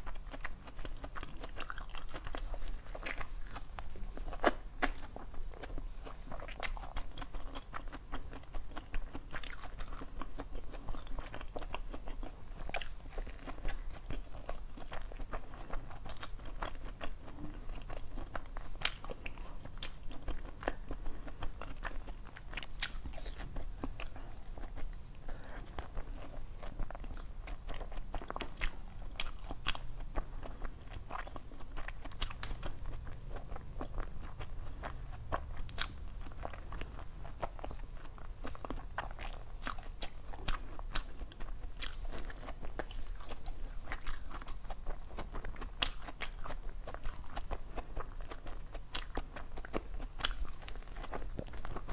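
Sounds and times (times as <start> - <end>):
person chewing crunchy food: 0.0 - 51.9.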